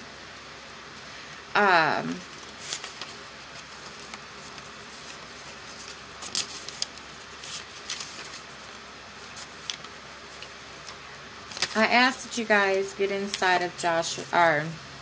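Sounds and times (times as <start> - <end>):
steady low hiss: 0.0 - 15.0
thin pages rustling: 2.3 - 11.9.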